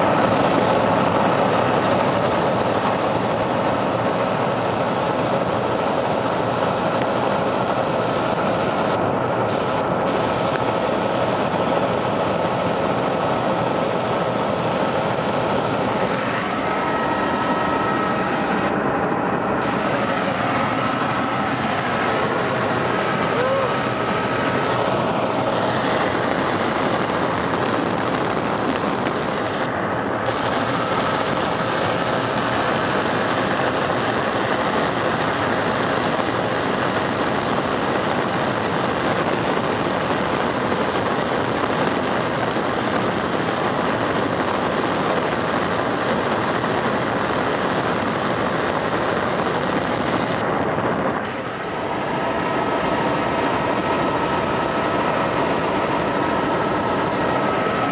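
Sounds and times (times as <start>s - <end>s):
faint whine tones: 0.0s - 57.9s
helicopter rotor and engine din: 0.0s - 57.9s.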